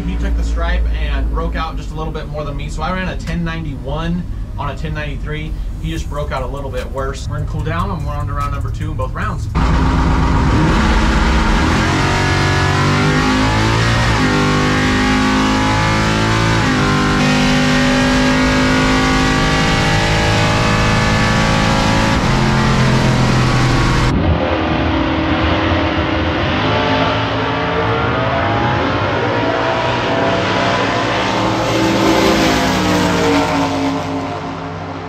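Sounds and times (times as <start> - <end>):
truck engine running: 0.0 - 12.9
race cars accelerating: 9.6 - 35.0.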